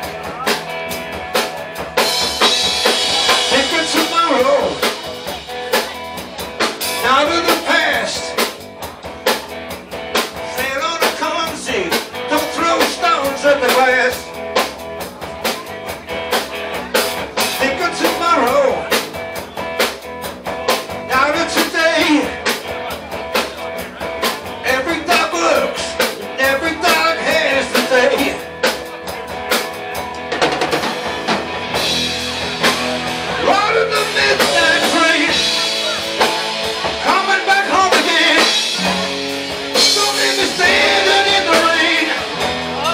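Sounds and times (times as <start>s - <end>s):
bass guitar: 0.0s - 42.9s
drum kit: 0.0s - 42.9s
electric guitar lead line: 0.0s - 42.9s.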